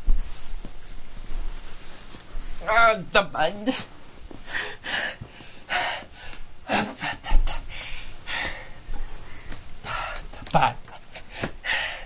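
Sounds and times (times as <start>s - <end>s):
person gasping breaths: 4.4s - 10.3s, 11.2s - 12.0s.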